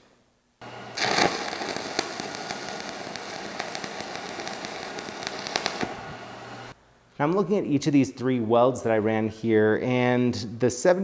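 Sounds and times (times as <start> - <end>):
stick welding arc crackling: 0.6 - 6.8.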